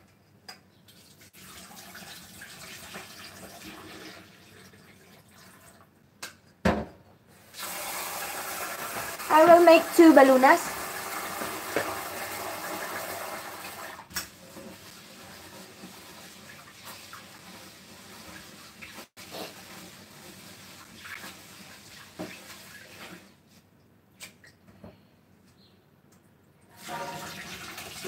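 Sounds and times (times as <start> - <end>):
kitchen tap running into sink: 0.9 - 5.9, 7.5 - 23.3, 26.7 - 28.0.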